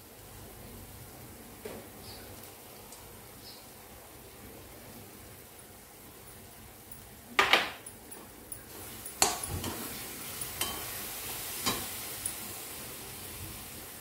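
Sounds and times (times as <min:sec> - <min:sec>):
low sizzle of cooking filling: 0:00.0 - 0:14.0
metal spatula clanking and scraping: 0:09.0 - 0:11.0, 0:11.6 - 0:12.4.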